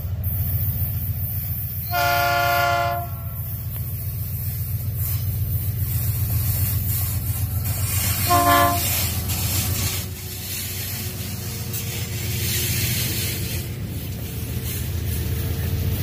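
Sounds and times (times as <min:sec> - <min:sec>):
locomotive engines rumbling: 0:00.0 - 0:16.0
wheel and rail hiss: 0:00.0 - 0:16.0
diesel locomotive horn blast: 0:01.8 - 0:03.5, 0:08.0 - 0:09.4.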